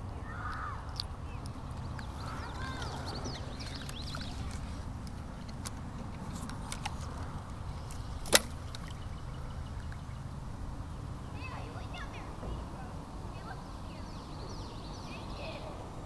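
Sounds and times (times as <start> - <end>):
birds chirping: 0.0 - 16.0
low outdoor rumble: 0.0 - 16.0
reel bail snapping shut: 5.4 - 9.0.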